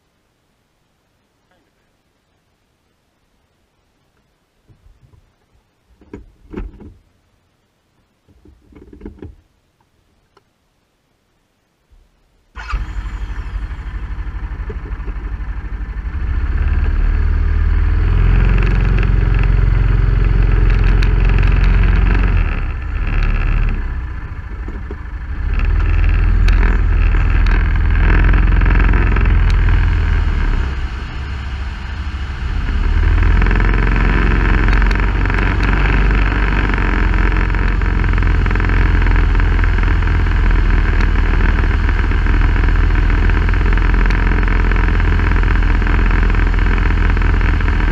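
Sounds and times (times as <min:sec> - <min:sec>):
low rumble of rough ride: 0:12.6 - 0:47.9
off-road vehicle engine: 0:12.6 - 0:47.9.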